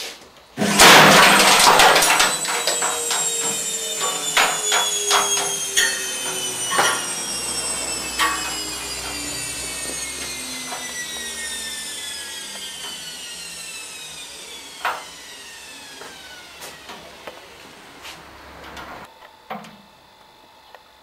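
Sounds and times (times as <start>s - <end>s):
washing machine motor whine: 0.6s - 19.1s.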